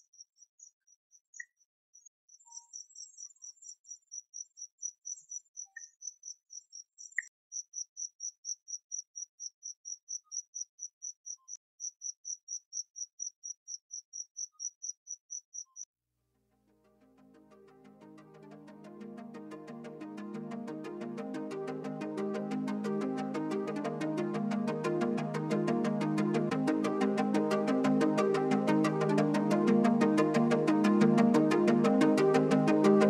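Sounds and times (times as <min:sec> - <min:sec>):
music: 0:16.5 - 0:33.0.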